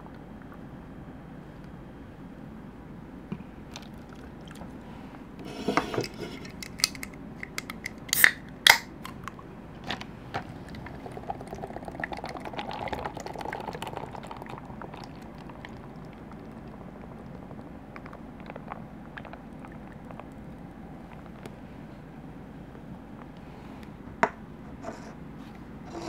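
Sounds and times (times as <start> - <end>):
cans and plastic cups clicking: 5.8 - 9.4
can cracked open: 6.5 - 9.2
soda pouring and fizzing: 10.4 - 20.5.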